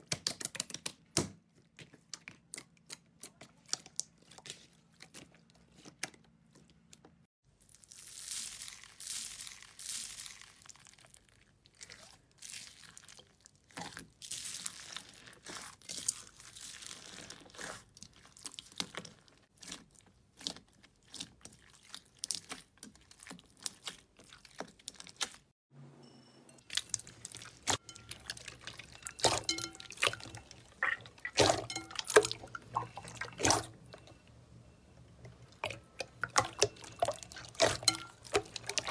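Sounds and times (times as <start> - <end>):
hands squeezing slime: 7.7 - 25.5.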